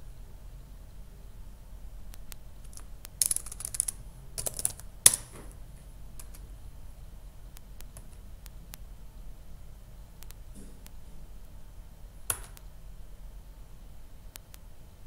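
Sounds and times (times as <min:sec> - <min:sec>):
laptop keyboard typing: 0:02.2 - 0:05.3.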